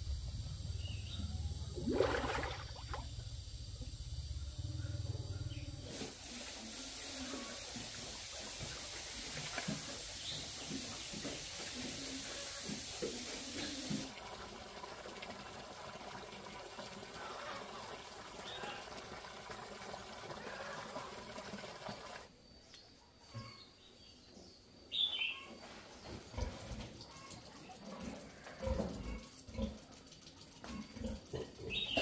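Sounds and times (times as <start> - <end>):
slurry pouring from pipes: 11.1 - 22.3
bird chirp: 31.6 - 32.0.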